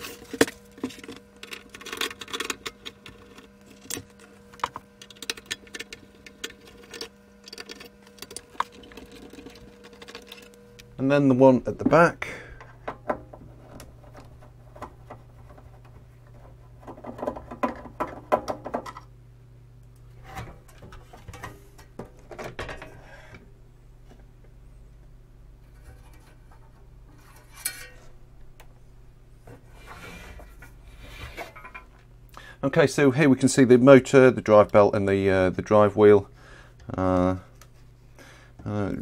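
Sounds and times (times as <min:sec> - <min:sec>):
steady low hum: 0:00.0 - 0:39.0
plastic and metal clatter: 0:12.7 - 0:19.1.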